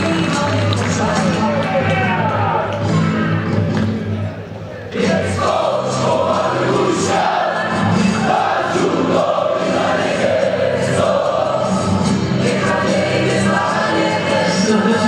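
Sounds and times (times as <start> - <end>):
crowd chanting in unison: 4.9 - 15.0.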